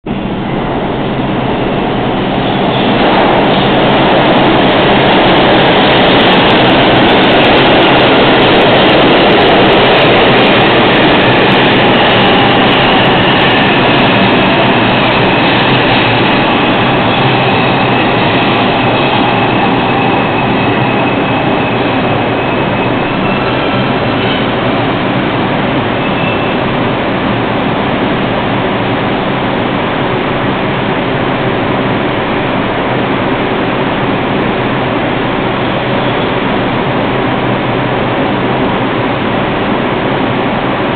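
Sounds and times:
faint high whine: 0.1 - 27.2
train wheels rumbling on rails: 0.1 - 40.9.

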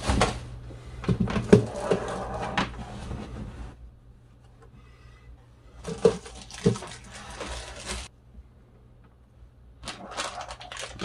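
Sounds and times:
plastic bag crinkling: 5.8 - 8.1, 9.8 - 11.0.

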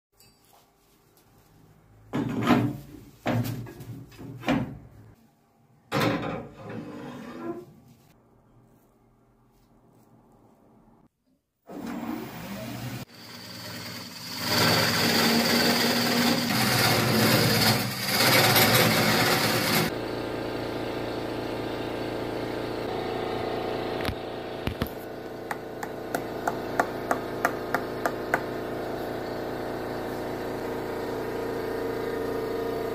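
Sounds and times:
tool cutting wood on lathe: 13.1 - 19.9
lathe humming: 25.3 - 32.8.

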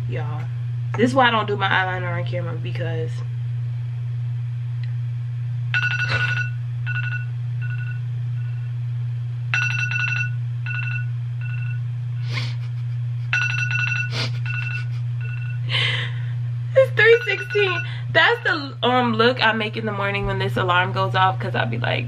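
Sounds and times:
steady low hum: 0.0 - 22.0
ringing alarm chime: 5.7 - 8.6, 9.5 - 11.8, 13.3 - 15.7, 17.0 - 18.0
short alarm beeps: 17.0 - 18.0.

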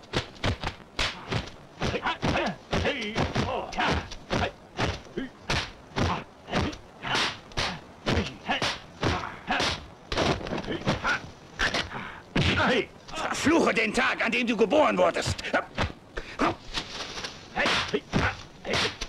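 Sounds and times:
punch and block smacks: 0.2 - 11.8, 12.4 - 12.7, 17.6 - 19.0
fighters shouting and grunting: 1.0 - 9.9, 10.6 - 14.2, 17.5 - 19.0.

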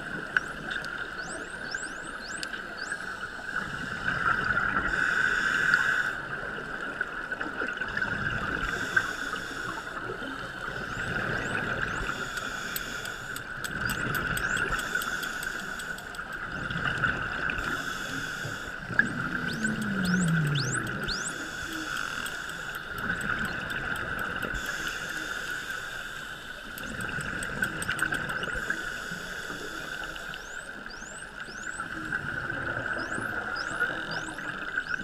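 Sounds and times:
regulator bubbles gurgling underwater: 0.0 - 25.7, 26.7 - 35.0
steady hum: 17.6 - 27.4.

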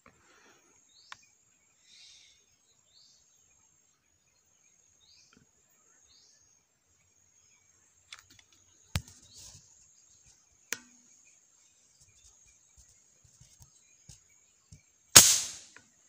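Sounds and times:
bird chirp: 0.0 - 16.0
air rifle shot: 15.2 - 15.7.

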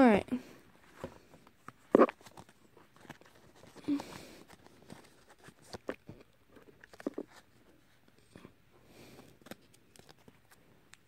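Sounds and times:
paper sticker sheet crinkling: 1.6 - 7.4, 9.4 - 10.6.

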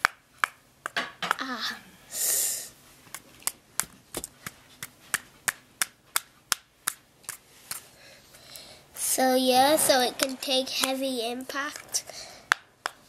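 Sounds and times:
sharp plastic knocks: 0.0 - 1.4, 3.4 - 7.0.

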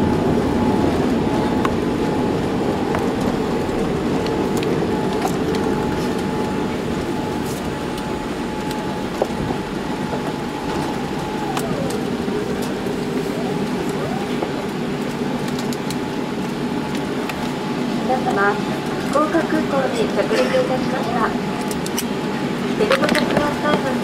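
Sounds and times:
engine whine sliding down: 0.0 - 16.2
airliner engine and airflow rush: 0.0 - 24.0.

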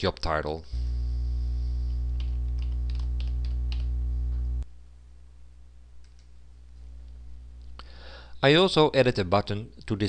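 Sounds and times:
electrical hum: 0.6 - 9.9
computer keyboard keystrokes: 2.2 - 3.9
faint mouse clicks: 6.0 - 6.4.

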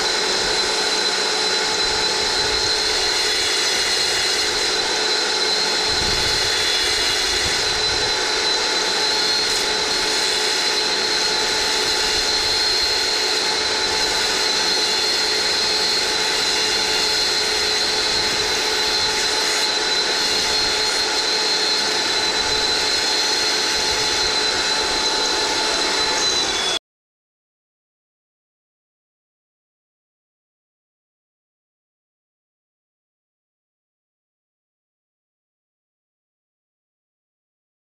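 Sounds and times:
wet tile saw cutting tile: 0.0 - 26.8.

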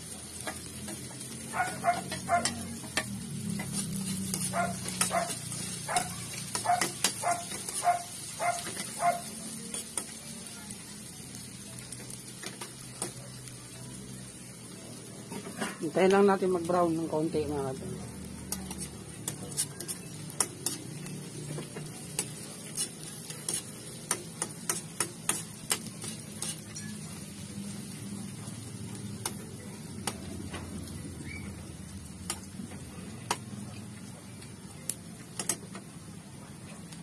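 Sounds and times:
onions sizzling: 0.0 - 37.0
metal spoon scraping frying pan: 0.4 - 10.1, 18.4 - 27.3.

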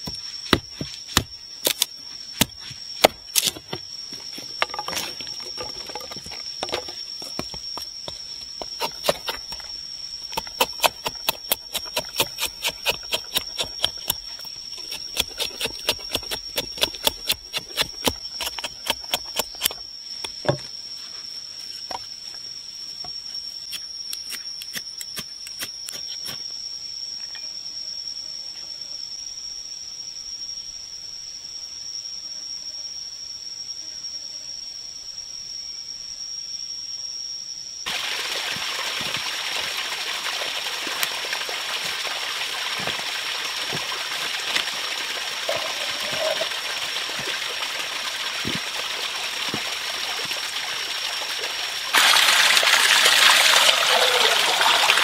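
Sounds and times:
knife chopping dry sticks: 0.5 - 3.6, 8.7 - 9.6, 10.4 - 19.7.

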